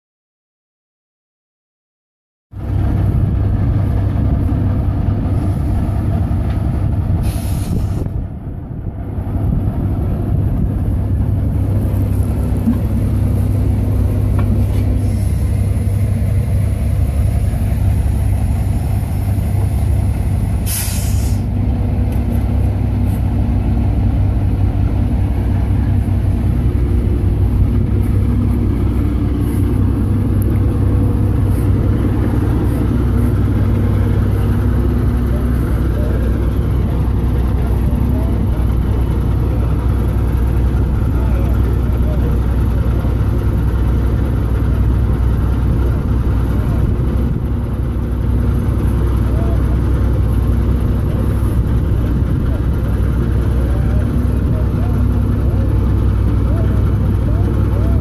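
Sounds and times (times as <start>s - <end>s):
diesel engine idling: 2.6s - 58.0s
air hisses: 7.2s - 8.0s, 20.6s - 21.5s.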